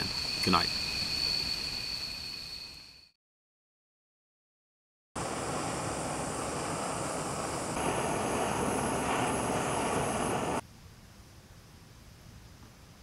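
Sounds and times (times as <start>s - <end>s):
gas burner roaring hiss: 5.2s - 10.6s.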